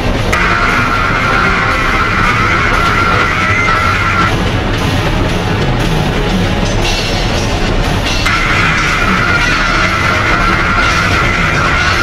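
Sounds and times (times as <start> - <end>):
harsh noise music: 0.0 - 12.0
high buzzing layer: 0.3 - 4.7, 8.2 - 12.0.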